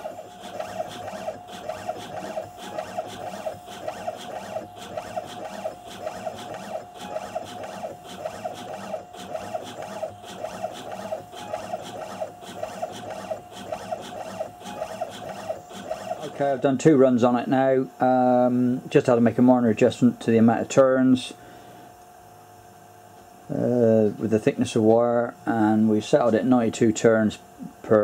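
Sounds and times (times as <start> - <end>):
coil winding machine whine: 0.0 - 22.6
regular machine ticks: 0.4 - 16.6.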